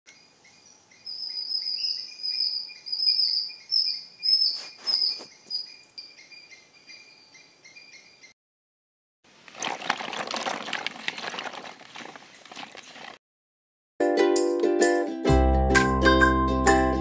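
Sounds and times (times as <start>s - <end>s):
animal chirping: 0.6s - 8.3s
brief rustle: 4.5s - 5.6s.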